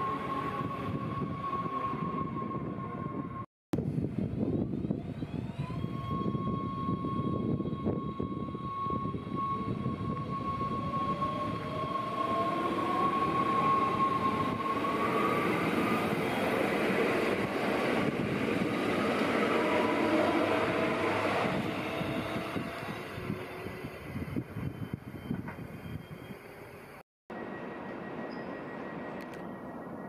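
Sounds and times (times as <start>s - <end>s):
train wheels rumbling on rails: 6.0s - 26.5s.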